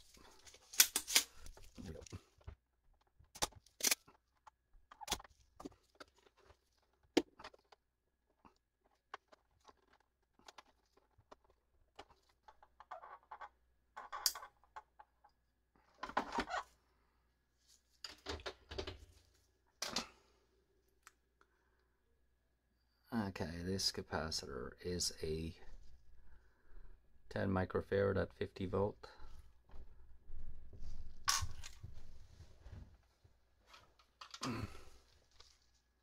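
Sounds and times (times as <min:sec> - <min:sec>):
rustling and knocking of handling: 0:01.4 - 0:15.4
desoldering pump snapping: 0:03.3 - 0:04.0.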